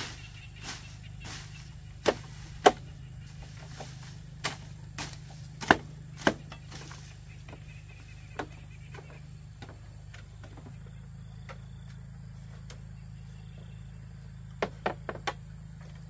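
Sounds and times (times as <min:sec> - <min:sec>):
low hum: 0:00.0 - 0:14.7
sharp chopping knocks: 0:02.0 - 0:02.9, 0:03.7 - 0:07.0.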